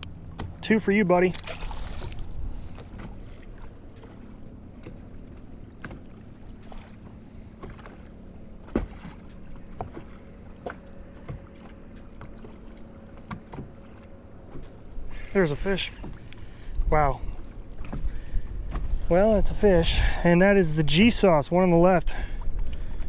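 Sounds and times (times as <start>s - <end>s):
faint steady hum: 0.0s - 23.0s
light knocks on boat hull: 8.6s - 12.6s.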